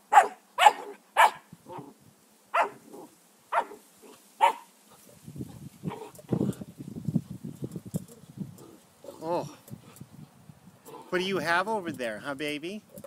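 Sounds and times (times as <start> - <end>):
puppy barking: 0.1 - 1.8, 2.5 - 2.8, 3.5 - 3.8, 4.4 - 4.7.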